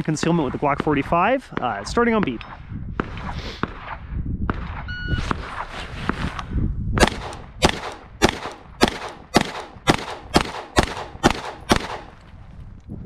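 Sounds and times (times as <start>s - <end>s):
pistol shots: 7.0s - 12.2s.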